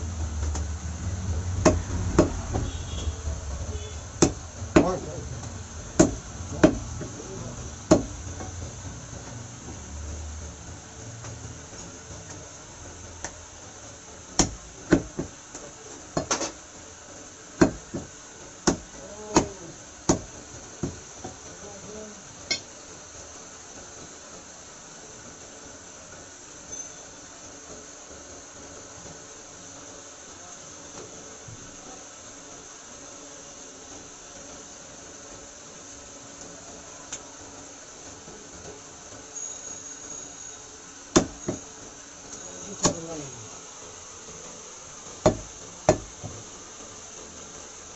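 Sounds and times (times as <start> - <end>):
steady background hum: 0.0 - 47.9
cleaver chopping meat on wood: 1.6 - 2.4, 4.2 - 5.0, 6.0 - 6.9, 7.9 - 8.2, 14.4 - 15.3, 17.6 - 21.0, 41.1 - 41.6, 45.2 - 46.4.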